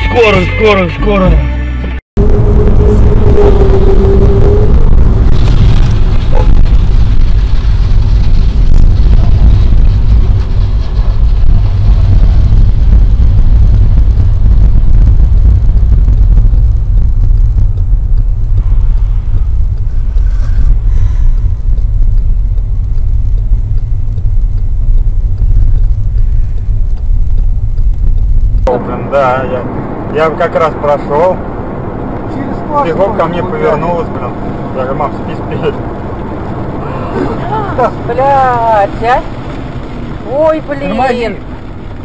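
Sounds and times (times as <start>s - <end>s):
car engine and road noise: 0.0s - 42.0s.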